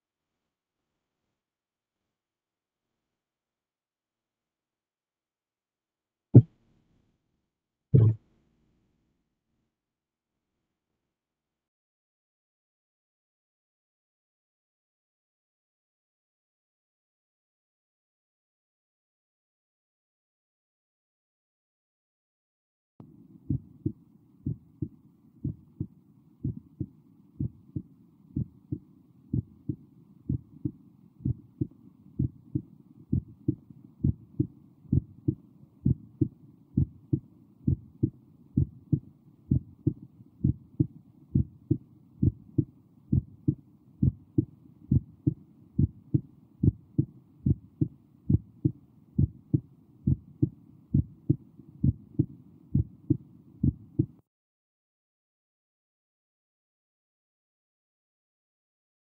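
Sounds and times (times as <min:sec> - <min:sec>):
human heartbeat: 0:08.0 - 0:08.2, 0:23.5 - 0:54.2.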